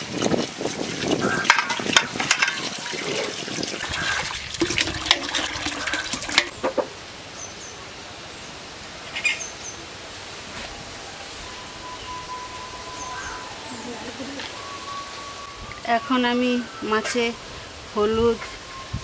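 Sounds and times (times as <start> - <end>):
water splashing and pouring: 0.0 - 6.5.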